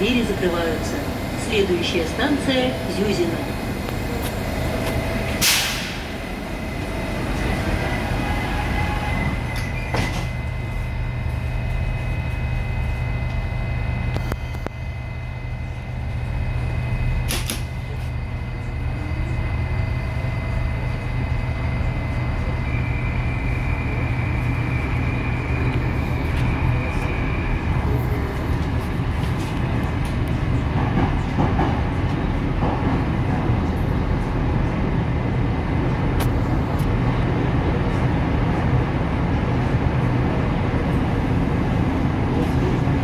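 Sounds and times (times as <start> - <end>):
train sliding doors shutting: 0.0 - 11.4, 16.6 - 18.2
train pulling out: 0.0 - 34.3
low hum of train equipment: 0.0 - 43.0.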